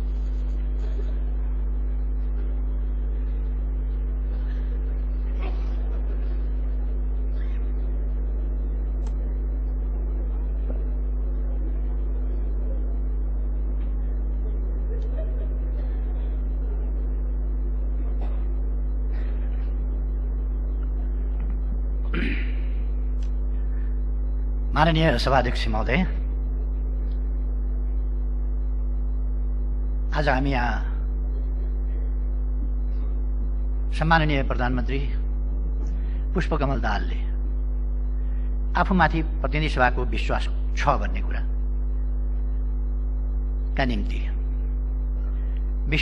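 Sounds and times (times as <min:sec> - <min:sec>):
electrical mains hum: 0:00.0 - 0:46.0
faint murmuring voices: 0:00.1 - 0:24.7.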